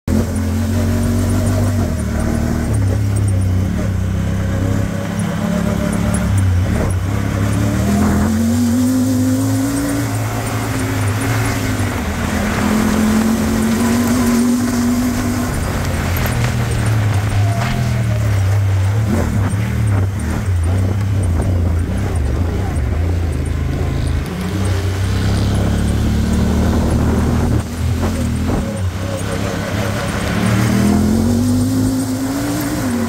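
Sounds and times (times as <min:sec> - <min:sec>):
vehicle engine running: 0:00.0 - 0:33.0.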